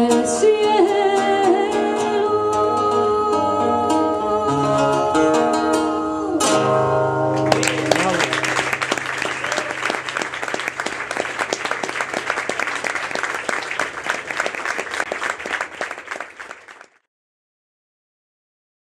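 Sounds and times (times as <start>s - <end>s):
audience applauding: 7.4s - 17.0s.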